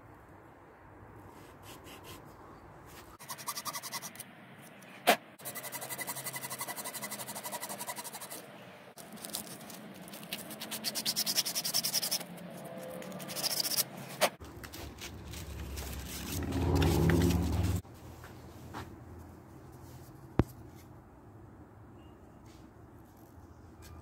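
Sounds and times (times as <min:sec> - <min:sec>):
sandpaper rubbing: 0:01.3 - 0:02.3, 0:02.9 - 0:04.2, 0:05.4 - 0:08.4, 0:09.0 - 0:14.2
hacksaw scraping strokes: 0:03.2 - 0:04.2, 0:05.4 - 0:08.5, 0:09.1 - 0:14.4
low rumble: 0:14.9 - 0:17.8.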